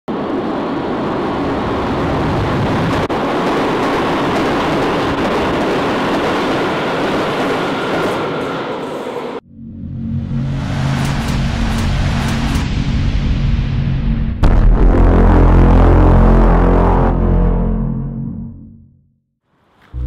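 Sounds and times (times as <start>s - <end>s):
subway train rumbling in tunnel: 0.1s - 14.0s.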